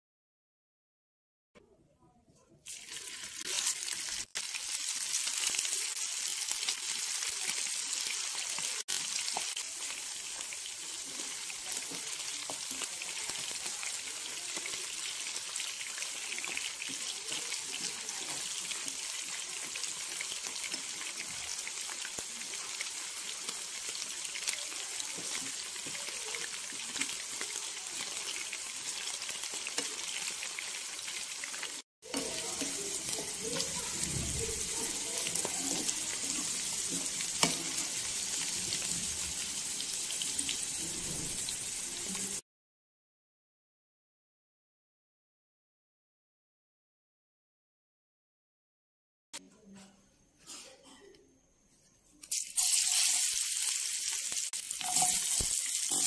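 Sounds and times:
chicken frying in hot oil: 2.6 - 42.4, 52.3 - 56.0.

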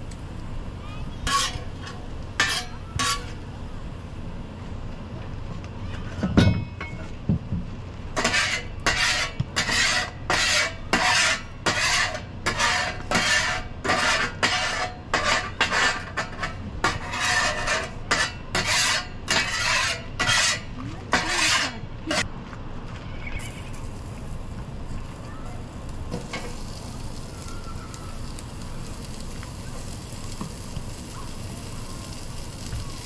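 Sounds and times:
scraper rasping across griddle: 1.2 - 3.4, 8.2 - 22.3.

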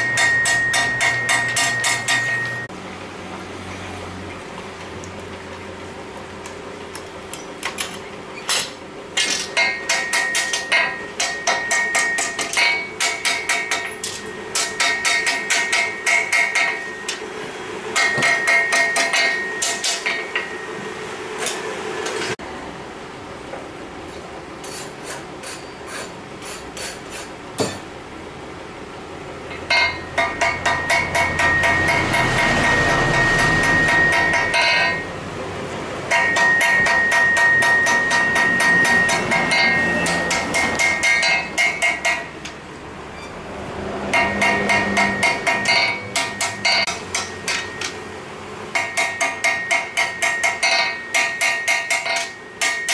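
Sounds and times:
hammer striking metal on anvil: 0.0 - 2.7, 7.3 - 17.3, 17.9 - 22.4, 27.6 - 27.9, 29.5 - 35.2, 36.1 - 42.6, 44.0 - 52.9.

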